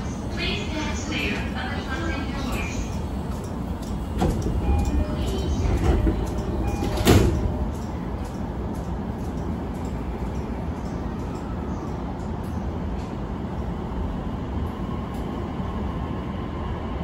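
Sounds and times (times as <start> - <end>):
low train hum: 0.0 - 17.0
sliding doors closing with thud: 4.1 - 7.6.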